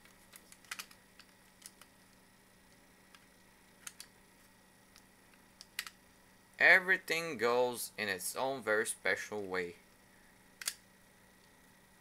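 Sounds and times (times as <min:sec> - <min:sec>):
plastic mouse parts clicking: 0:00.3 - 0:01.9, 0:03.1 - 0:04.1, 0:05.6 - 0:06.0.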